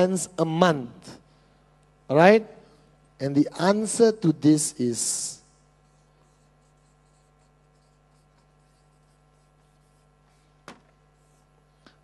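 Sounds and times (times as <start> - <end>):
felt-tip marker squeaking on paper: 5.8 - 10.4.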